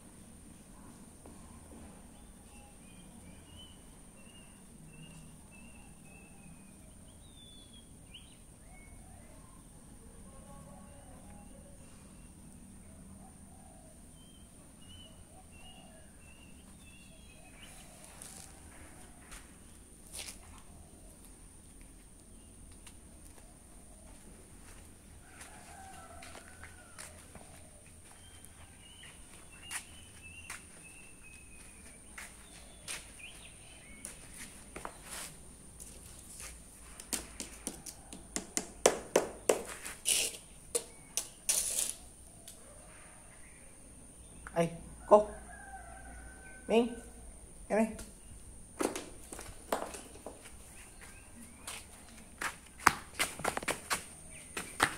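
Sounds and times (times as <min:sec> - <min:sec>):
small birds chirping: 0:02.0 - 0:24.6, 0:26.0 - 0:36.6, 0:47.6 - 0:52.4
soft rustles and scuffs: 0:16.7 - 0:37.6, 0:48.9 - 0:54.9.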